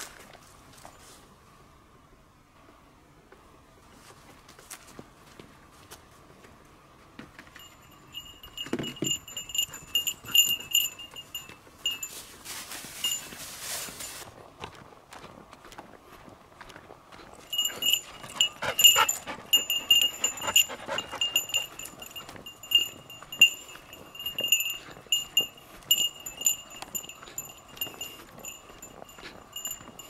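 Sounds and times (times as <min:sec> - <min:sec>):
small bell jingling: 0:07.6 - 0:14.2, 0:17.4 - 0:30.0
light footsteps: 0:07.6 - 0:30.0.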